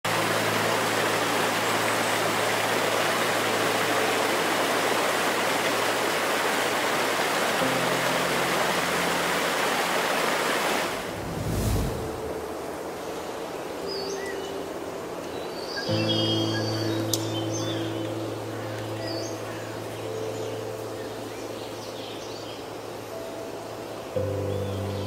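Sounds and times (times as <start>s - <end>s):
waterfall rushing: 0.1s - 24.8s
low whoosh: 10.9s - 12.8s.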